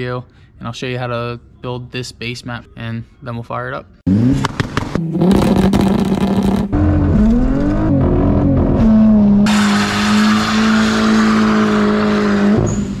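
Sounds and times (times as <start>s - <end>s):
car engine revving: 4.1s - 13.0s.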